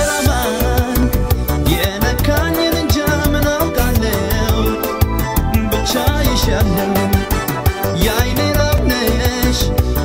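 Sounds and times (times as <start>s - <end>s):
drum kit cymbal beat: 0.0s - 10.0s
live pop band playing: 0.0s - 10.0s.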